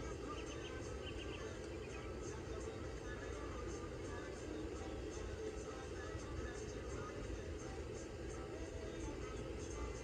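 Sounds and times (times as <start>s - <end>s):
low background rumble: 0.0s - 10.0s
birds chirping: 0.1s - 2.2s.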